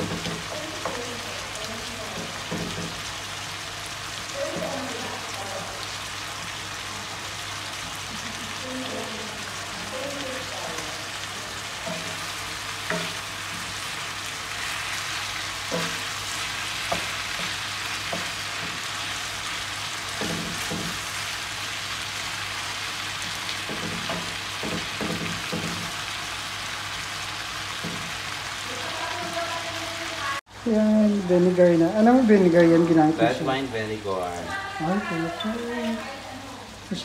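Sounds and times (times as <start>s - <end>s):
meat sizzling in a skillet: 0.0s - 37.0s
wooden spoon scraping a pan: 11.7s - 19.4s.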